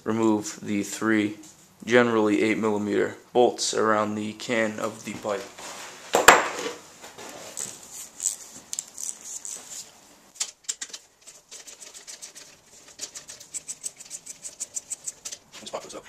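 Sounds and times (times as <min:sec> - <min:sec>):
socket ratchet clicking: 0:13.4 - 0:15.4.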